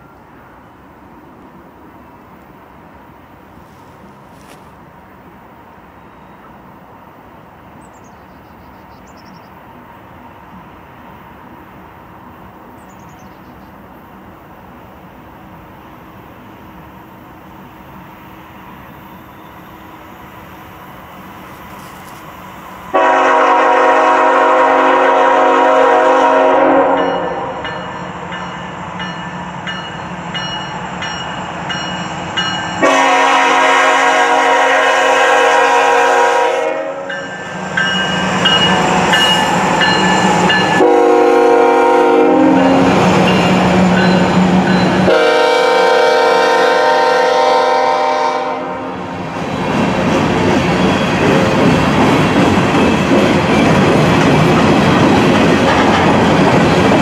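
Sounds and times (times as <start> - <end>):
locomotive air horn blasts: 22.9 - 27.6, 32.8 - 37.3, 40.7 - 42.9, 44.9 - 49.0
train wheels clattering on rails: 37.0 - 41.0, 42.5 - 45.2, 49.3 - 57.0.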